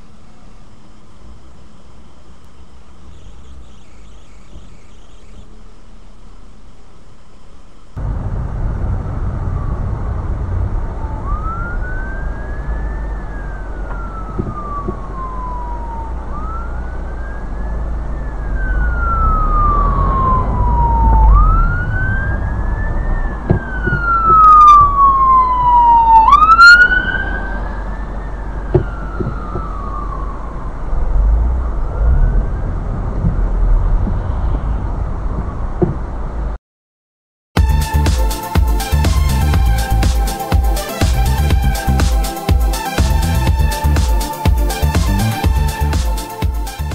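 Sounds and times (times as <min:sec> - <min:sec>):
low road rumble: 0:00.0 - 0:36.6, 0:37.6 - 0:46.9
higher siren tone: 0:09.0 - 0:34.8, 0:37.6 - 0:46.9
siren wailing: 0:09.1 - 0:34.8, 0:37.6 - 0:46.9.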